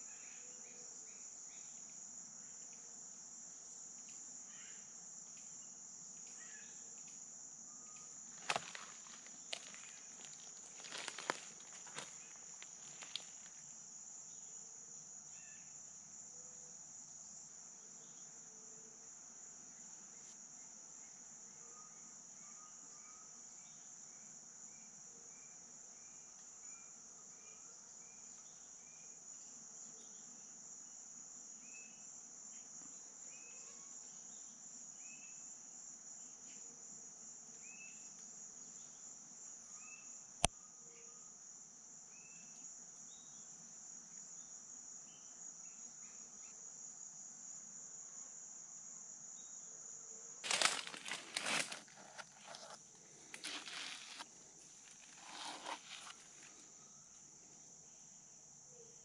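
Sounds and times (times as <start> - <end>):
short insect chirps: 4.0 - 14.5, 50.4 - 57.3.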